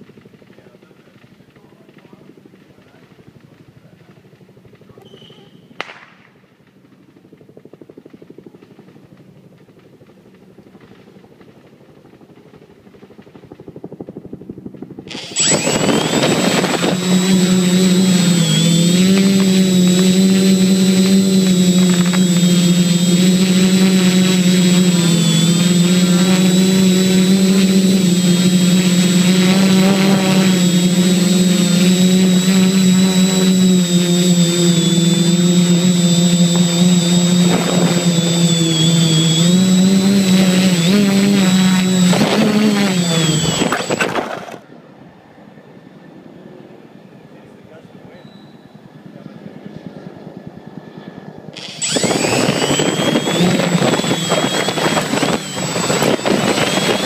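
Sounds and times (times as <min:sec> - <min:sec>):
drone motors and propellers: 0:07.2 - 0:44.7, 0:49.0 - 0:57.0
high electric whine: 0:15.1 - 0:44.6, 0:51.5 - 0:57.0.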